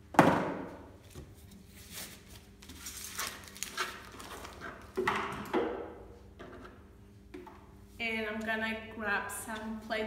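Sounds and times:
plastic gloves crinkling: 1.8s - 5.0s.

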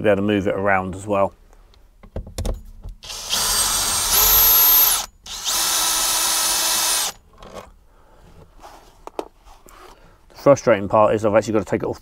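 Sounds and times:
cordless drill whining: 3.0s - 7.2s.

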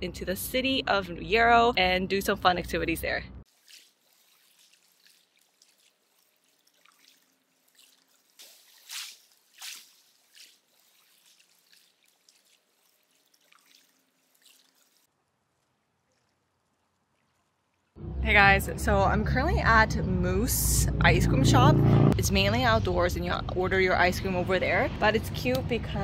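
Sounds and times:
water dripping and splashing: 3.4s - 18.0s
loud water splashes: 3.5s - 15.1s.

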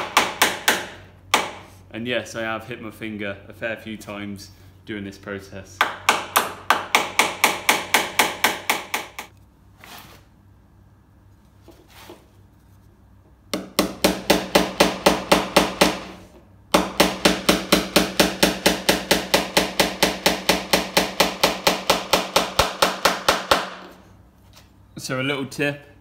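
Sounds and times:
hammer tapping pins: 0.0s - 1.7s, 5.8s - 9.3s.

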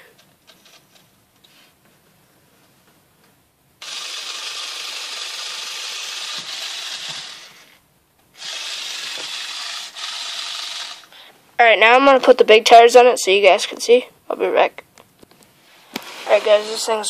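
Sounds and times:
small electric motor and gears whirring: 3.8s - 7.8s, 8.4s - 11.1s, 15.9s - 17.0s.

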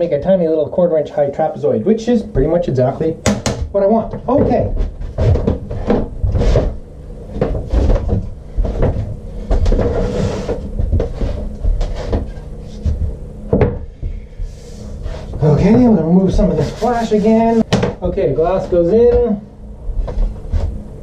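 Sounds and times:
knocks and thumps on workbench: 3.2s - 6.8s, 7.4s - 14.1s, 17.7s - 18.0s.

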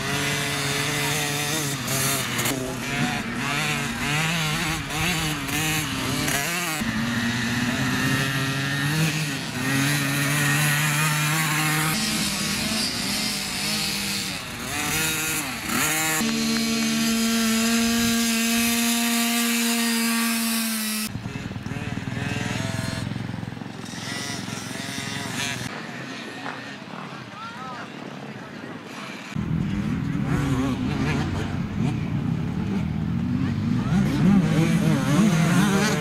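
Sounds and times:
dirt bike engines revving: 0.0s - 36.0s
distant engine: 0.0s - 36.0s.

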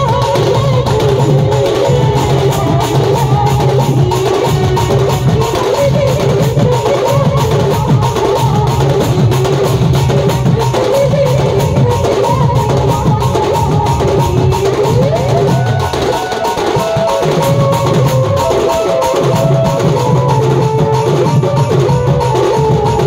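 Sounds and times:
barrel drums beating: 0.0s - 23.0s.

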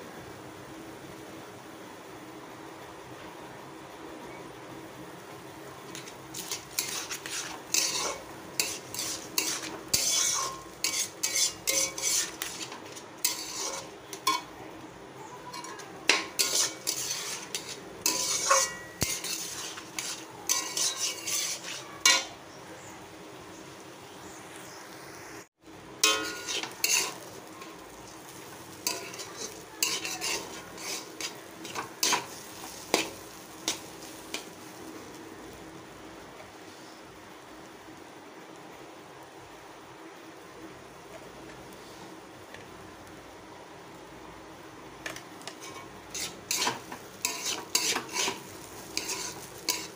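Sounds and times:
spatula scraping metal pan: 5.9s - 14.5s, 15.5s - 22.3s, 26.0s - 34.5s, 45.4s - 49.9s.

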